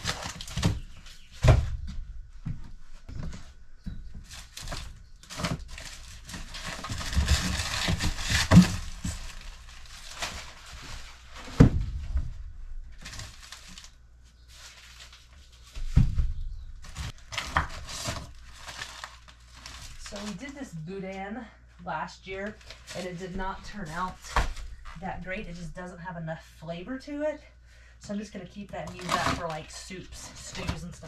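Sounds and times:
paper rustling and crinkling: 0:00.0 - 0:01.7, 0:04.2 - 0:12.2, 0:12.8 - 0:20.6, 0:22.4 - 0:25.0, 0:28.8 - 0:31.0
frozen bundles knocking: 0:00.0 - 0:02.1, 0:03.9 - 0:13.9, 0:15.7 - 0:20.6, 0:28.8 - 0:31.0.

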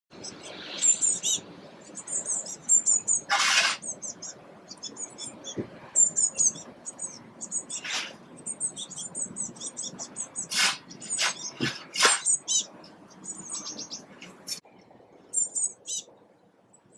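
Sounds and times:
chicks cheeping: 0:00.2 - 0:14.6.

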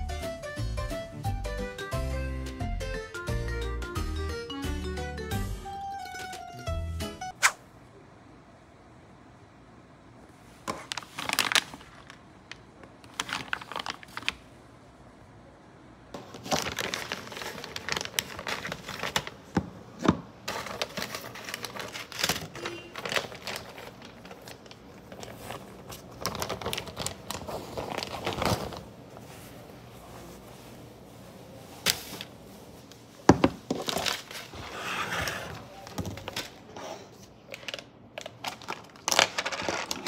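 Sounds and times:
plastic packaging crinkling: 0:10.6 - 0:14.5, 0:16.2 - 0:19.5, 0:20.4 - 0:29.5, 0:33.6 - 0:34.6, 0:35.7 - 0:40.0.

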